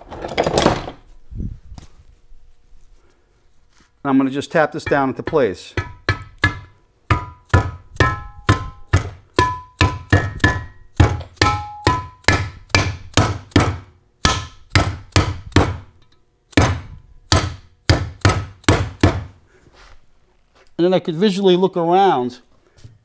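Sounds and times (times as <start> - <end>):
rubber mallet tapping metal plate: 4.8 - 15.8.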